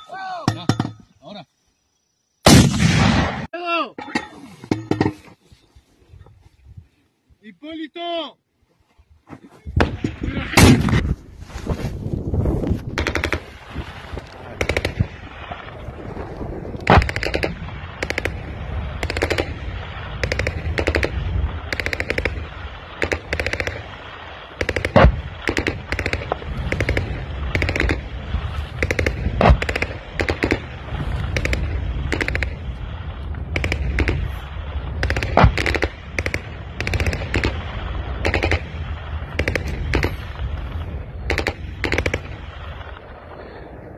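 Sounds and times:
loud single gunshots: 2.4s - 3.5s, 9.8s - 11.1s
automatic gunfire bursts: 24.6s - 28.0s, 28.8s - 30.6s, 35.0s - 37.6s.

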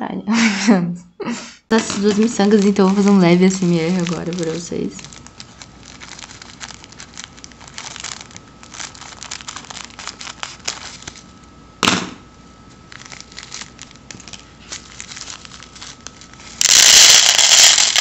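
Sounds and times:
plastic bag crinkling: 1.8s - 11.5s, 12.7s - 18.0s
loud sharp snap: 11.8s - 12.2s
beads clicking together: 16.6s - 18.0s.

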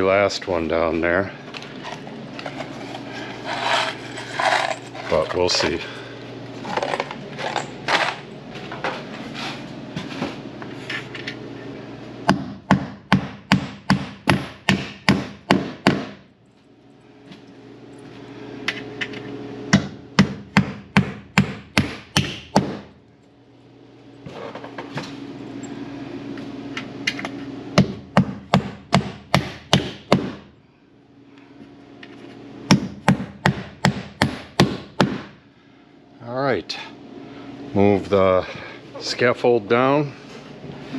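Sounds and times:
hammer striking nails through metal: 12.3s - 16.2s, 19.7s - 22.8s, 27.8s - 30.4s.

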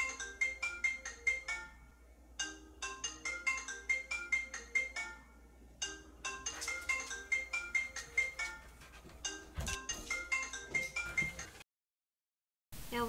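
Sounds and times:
marimba phone ringtone: 2.4s - 8.6s.

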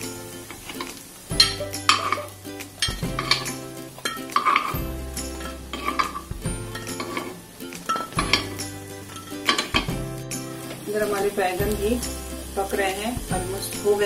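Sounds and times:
metal spoon clinking on pan: 0.8s - 4.8s, 5.4s - 9.9s.

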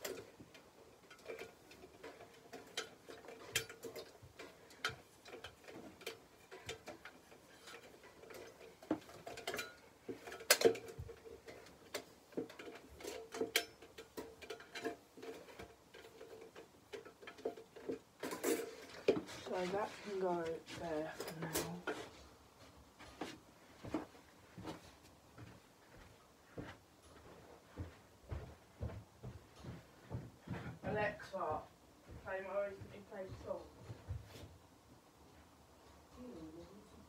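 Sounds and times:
metallic taps and knocks of fan: 0.0s - 19.4s.

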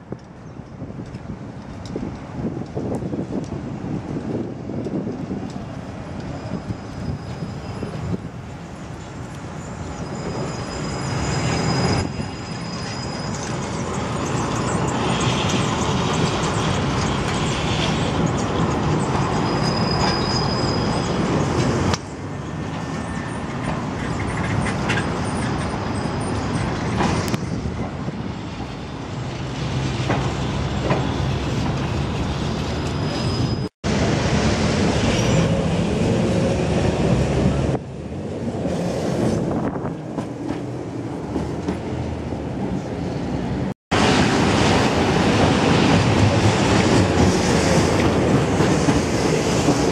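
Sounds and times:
tram wheels rumbling on rails: 0.0s - 49.9s
high-pitched wheel squeals: 6.3s - 8.2s, 9.6s - 15.4s, 19.2s - 21.5s, 32.8s - 33.7s.

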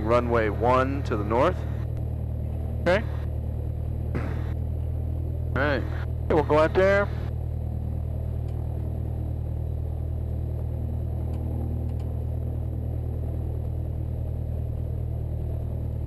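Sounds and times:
small plane engine and propeller: 0.0s - 16.0s.

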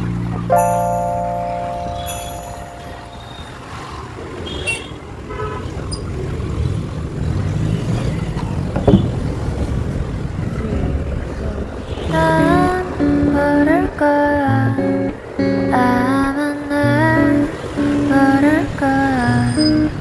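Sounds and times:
music: 0.0s - 3.6s, 12.2s - 13.6s, 14.5s - 18.7s, 19.4s - 20.0s
vehicle horn toots: 2.0s - 5.8s
motorbike engine and road rumble: 3.2s - 20.0s.

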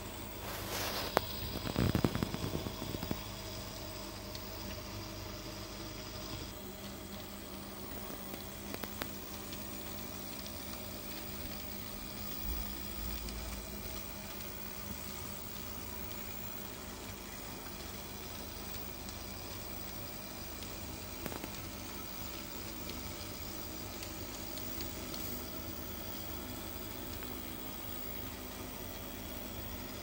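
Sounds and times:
noisy hiss: 0.0s - 6.6s, 18.4s - 28.3s.

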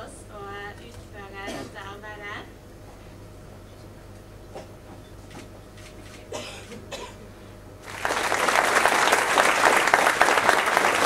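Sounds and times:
audience applause: 7.8s - 11.0s.

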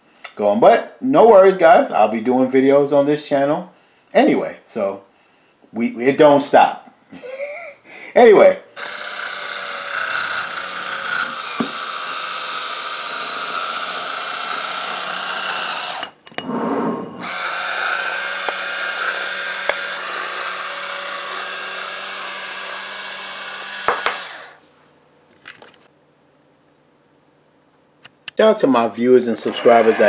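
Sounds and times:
electric wine opener whirring: 8.8s - 16.2s, 17.2s - 24.6s.

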